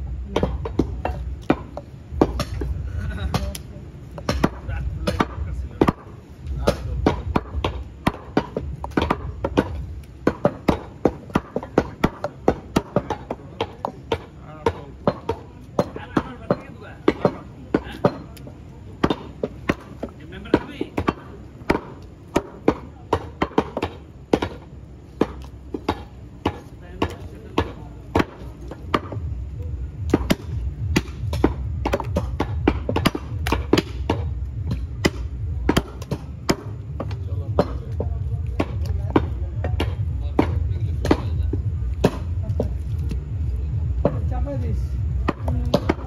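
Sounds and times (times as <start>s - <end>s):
low background rumble: 0.0s - 46.0s
knives chopping meat on wood: 4.2s - 29.2s.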